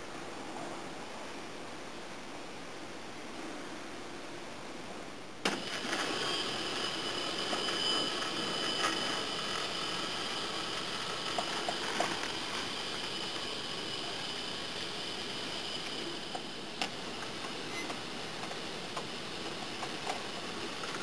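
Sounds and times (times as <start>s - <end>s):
electric motor whine: 5.5s - 21.0s.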